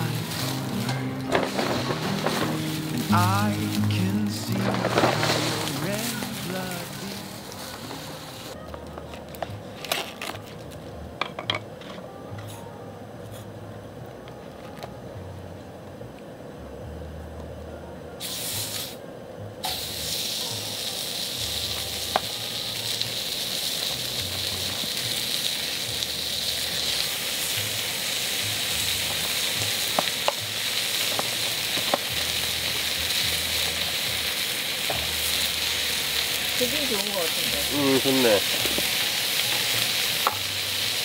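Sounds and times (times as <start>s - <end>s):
pork sizzling on griddle: 0.0s - 8.6s, 18.2s - 19.0s, 19.6s - 41.0s.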